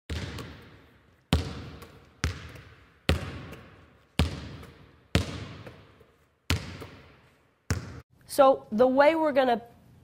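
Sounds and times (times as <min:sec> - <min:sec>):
basketball bouncing with echo: 0:00.1 - 0:08.0.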